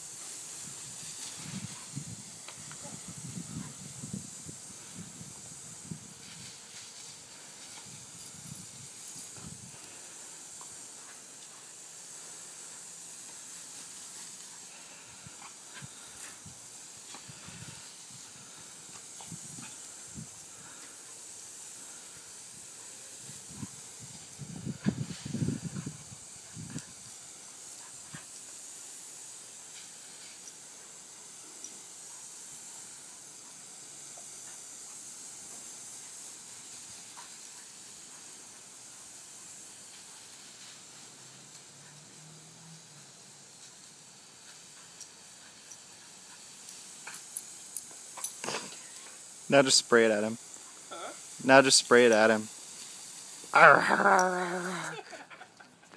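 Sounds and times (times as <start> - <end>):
garden hose spraying water: 0.0 - 55.9
dog snapping at spray: 47.0 - 48.8.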